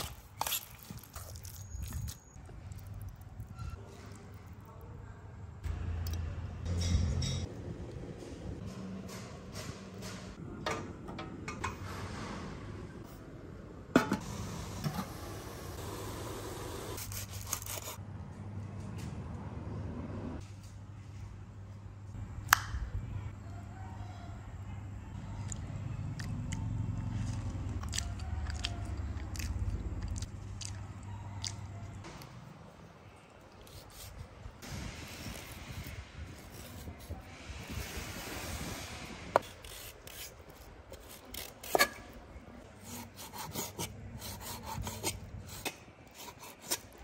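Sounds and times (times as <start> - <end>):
crunching bread: 0.0 - 3.6, 25.4 - 32.4
dishes and utensils clinking: 6.7 - 7.6.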